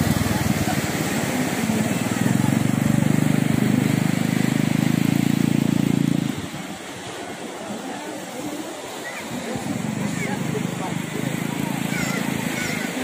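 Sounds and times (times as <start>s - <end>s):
quad bike engine running: 0.0s - 6.5s, 9.6s - 13.0s.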